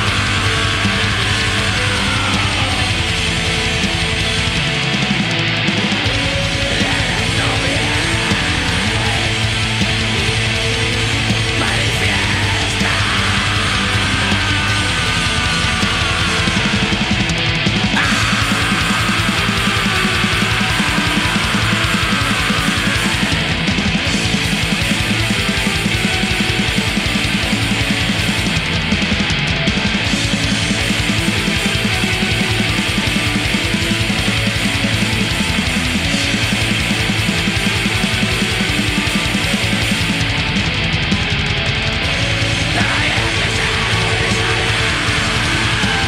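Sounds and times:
distorted guitars: 0:00.0 - 0:46.0
very fast drumming: 0:00.0 - 0:46.0.

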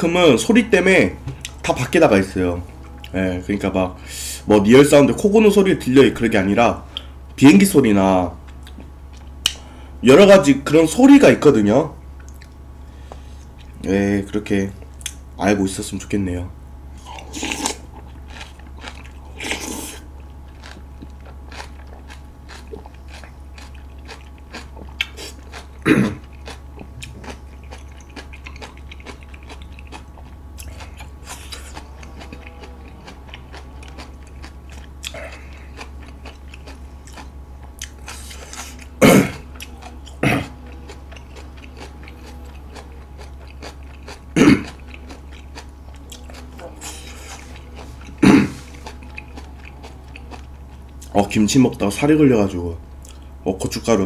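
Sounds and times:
steady low hum: 0:00.0 - 0:54.0
noodle slurping and chewing: 0:16.9 - 0:51.8
person coughing: 0:25.8 - 0:26.3, 0:35.1 - 0:35.7, 0:39.0 - 0:39.5, 0:40.1 - 0:40.6, 0:44.4 - 0:44.8, 0:48.2 - 0:48.7.

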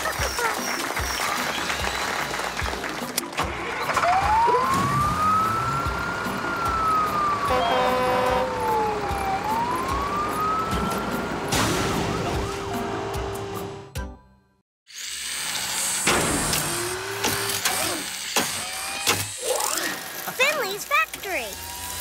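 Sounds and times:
background music: 0:00.0 - 0:14.6
cartoon siren wailing: 0:04.0 - 0:11.2.

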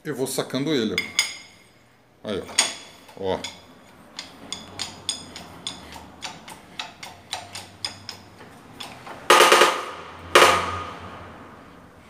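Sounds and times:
loud ringing metal clang: 0:09.3 - 0:11.1.

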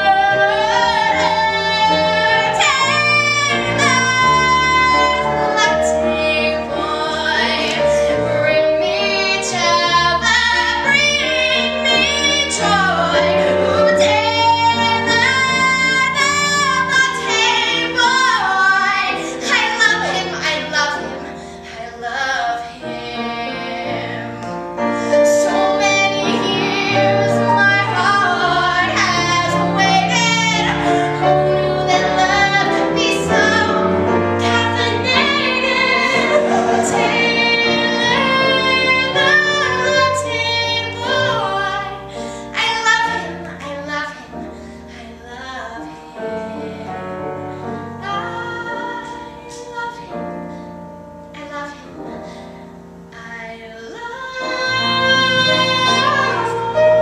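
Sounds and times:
woman singing into a microphone: 0:00.0 - 0:50.7, 0:53.1 - 0:57.0
instrumental accompaniment: 0:00.0 - 0:57.0.

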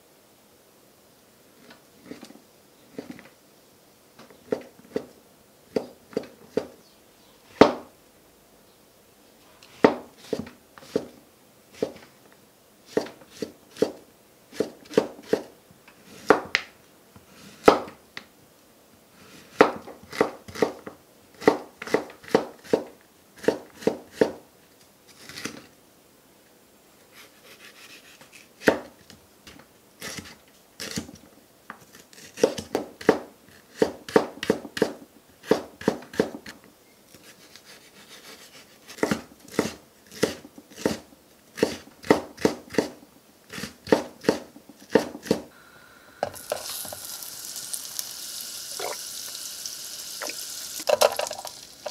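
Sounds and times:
knife chopping on wooden board: 0:09.8 - 0:11.1, 0:12.9 - 0:15.5, 0:19.5 - 0:20.8, 0:32.2 - 0:36.6, 0:38.0 - 0:41.0, 0:41.6 - 0:45.4.

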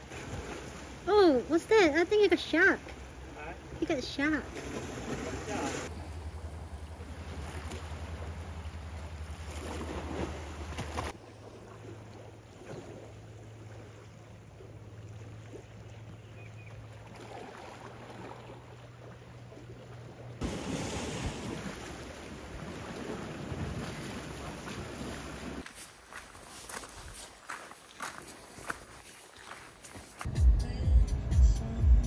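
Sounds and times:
waves washing on rocky shore: 0:20.4 - 0:25.6.

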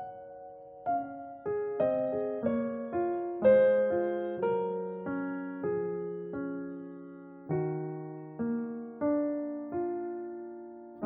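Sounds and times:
slow piano melody: 0:00.0 - 0:11.0.

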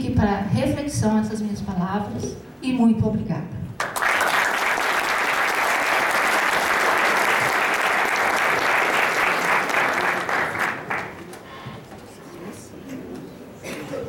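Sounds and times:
audience applauding: 0:03.8 - 0:11.5.

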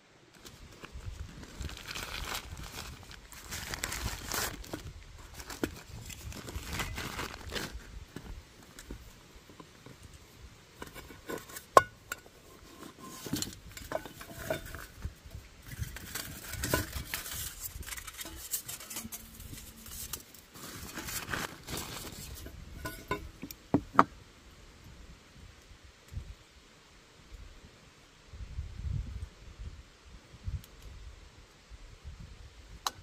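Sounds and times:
cloth rustling: 0:15.8 - 0:23.1.

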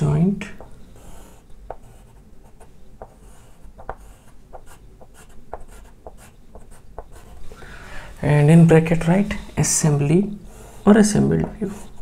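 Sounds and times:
chalk tapping and scraping on board: 0:00.6 - 0:07.4, 0:10.9 - 0:12.0.

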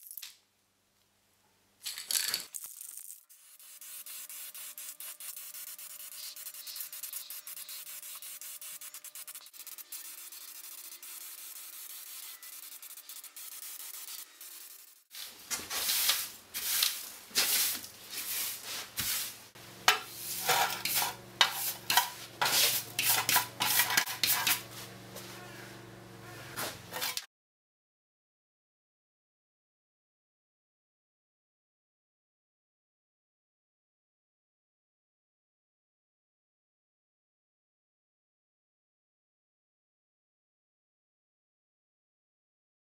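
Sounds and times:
spray paint can hissing: 0:02.6 - 0:15.2
broom sweeping concrete floor: 0:03.3 - 0:25.8, 0:26.4 - 0:27.3
metal dustpan scraping floor: 0:15.1 - 0:25.5, 0:26.4 - 0:27.3.

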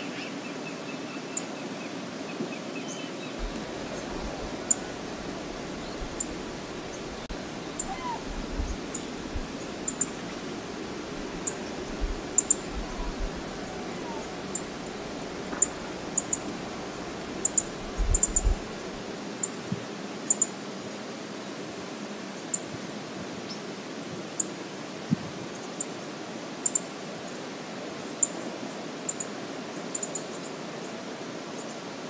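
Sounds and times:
flowing river water: 0:00.0 - 0:32.0
wind: 0:00.0 - 0:32.0
wind buffeting microphone: 0:03.4 - 0:19.2.

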